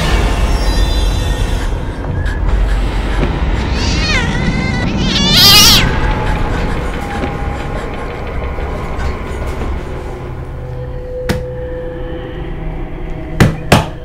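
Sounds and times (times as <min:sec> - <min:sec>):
cat yowling: 0:03.6 - 0:05.9.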